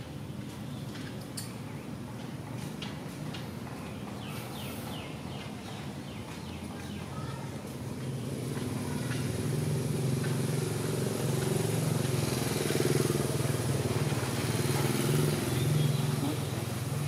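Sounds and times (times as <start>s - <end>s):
motorcycle engine running: 7.8s - 17.0s.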